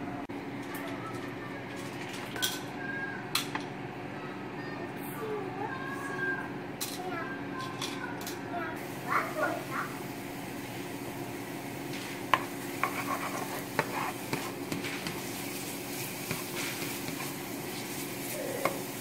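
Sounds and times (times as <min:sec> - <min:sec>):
garlic sizzling in oil: 0:08.8 - 0:19.0.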